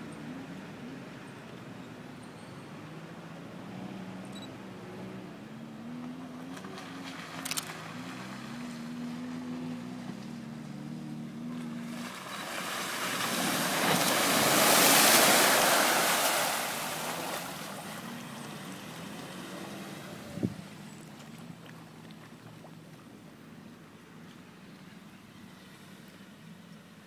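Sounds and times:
muddy water splashing: 0:05.8 - 0:23.2.

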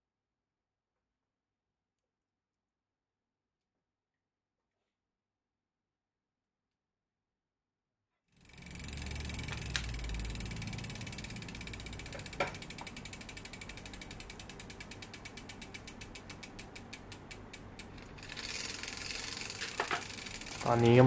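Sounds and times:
bicycle freehub ticking: 0:08.4 - 0:21.0
light knocks from derailleur: 0:08.8 - 0:14.1.

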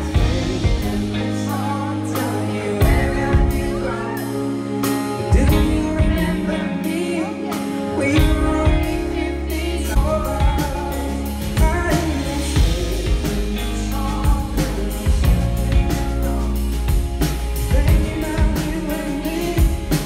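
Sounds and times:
bass: 0:00.0 - 0:20.0
electric guitar: 0:00.0 - 0:20.0
man singing: 0:00.0 - 0:20.0.

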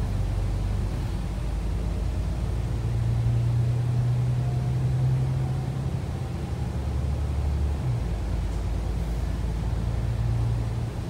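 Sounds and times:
bus engine drone: 0:00.0 - 0:11.0
road noise: 0:00.0 - 0:11.0.

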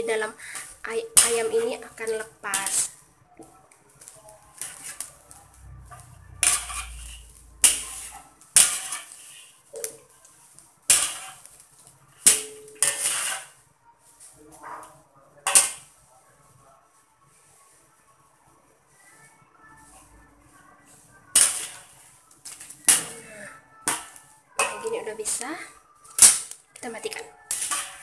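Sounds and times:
strainer scraping a metal wok: 0:04.6 - 0:09.6, 0:10.9 - 0:11.5, 0:12.8 - 0:13.6, 0:27.5 - 0:28.0.

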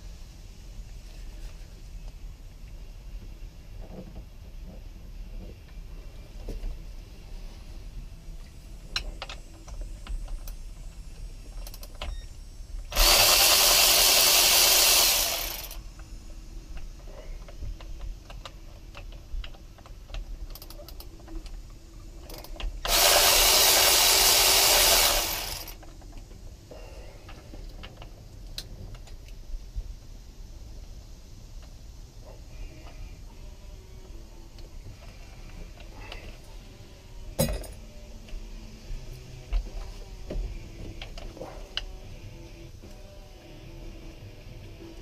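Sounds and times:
cordless drill running: 0:12.9 - 0:15.8, 0:22.8 - 0:25.8.

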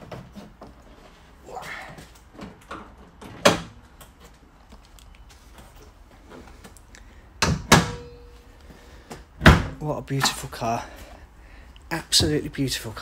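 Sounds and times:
metallic ringing: 0:07.7 - 0:08.6.

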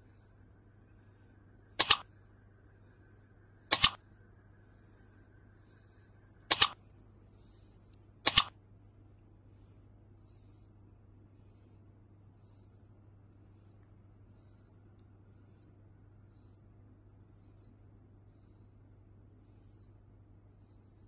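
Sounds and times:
mouse double clicks: 0:01.8 - 0:02.0, 0:03.7 - 0:04.0, 0:06.5 - 0:06.8, 0:08.3 - 0:08.5.

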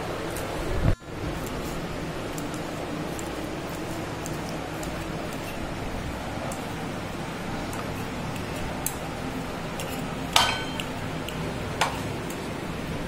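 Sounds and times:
steady low hum: 0:00.0 - 0:13.0
utensils clinking against dishes: 0:09.8 - 0:12.4.

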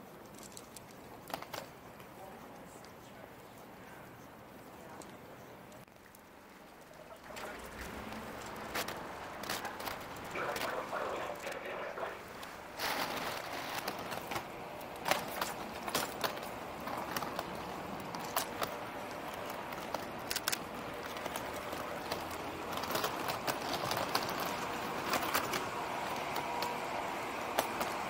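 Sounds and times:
busy public place background noise: 0:00.0 - 0:28.0.

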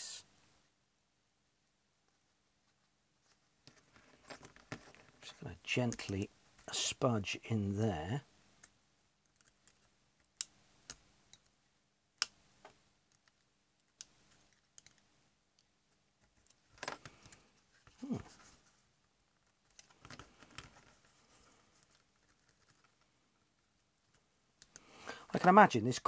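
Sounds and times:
scraping and handling noise: 0:02.0 - 0:06.8, 0:12.6 - 0:24.9.

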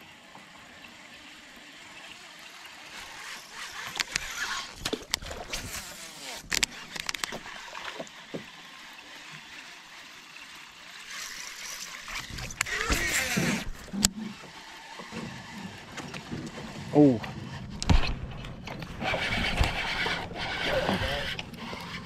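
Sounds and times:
fishing reel cranking: 0:02.8 - 0:08.0, 0:09.0 - 0:15.1, 0:18.9 - 0:22.0
sharp clicks: 0:06.4 - 0:07.5.

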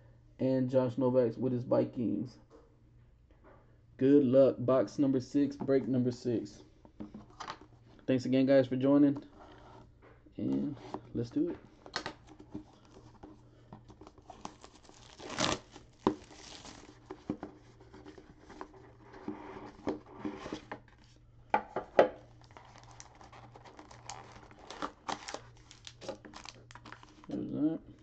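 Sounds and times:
cardboard boxes handled and slid: 0:12.3 - 0:21.2
wrapping tearing and crinkling: 0:13.9 - 0:18.7, 0:22.4 - 0:27.5.

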